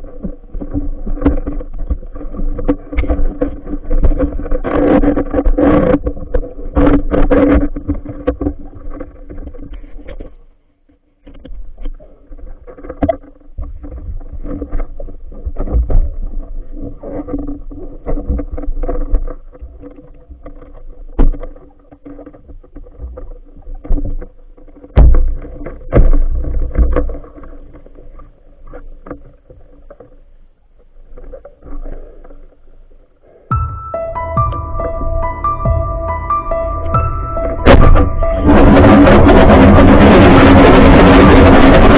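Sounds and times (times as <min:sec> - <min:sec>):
heavy thumps: 0:33.5 - 0:41.9
steady low hum: 0:33.5 - 0:41.9
water rushing underwater: 0:33.5 - 0:41.9.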